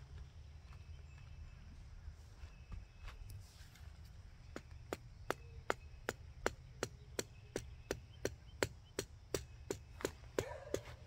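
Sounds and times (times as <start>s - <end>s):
tent stake being pounded: 4.5s - 11.0s.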